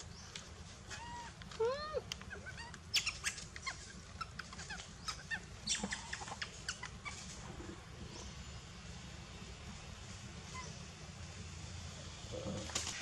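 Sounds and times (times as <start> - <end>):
low steady rumble: 0.0 - 12.7
animal squeaks and chirps: 2.3 - 7.3.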